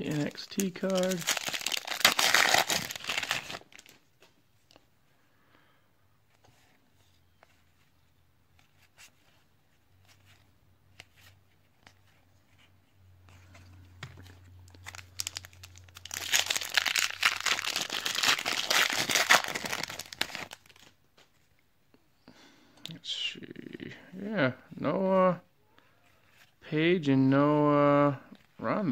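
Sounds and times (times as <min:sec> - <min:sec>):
foil wrapper crinkling and tearing: 0:00.0 - 0:03.9, 0:14.7 - 0:20.9.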